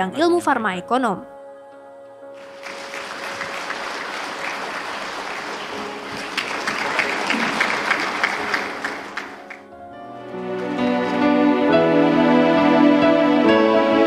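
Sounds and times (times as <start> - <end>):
audience applauding: 2.4 - 9.7.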